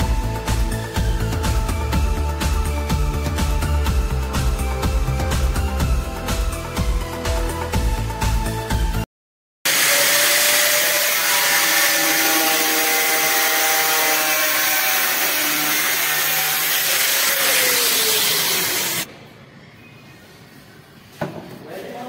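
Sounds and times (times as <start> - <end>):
angle grinder cutting plastic: 9.7 - 19.1.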